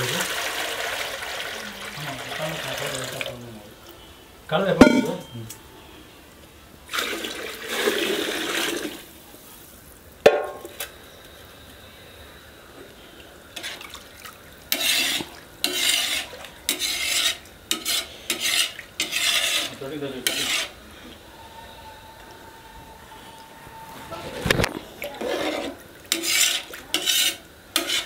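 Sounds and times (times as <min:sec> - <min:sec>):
water pouring into a pot: 0:00.0 - 0:03.7, 0:06.9 - 0:09.2
ladle swishing in a pot: 0:14.7 - 0:20.8, 0:23.8 - 0:28.0.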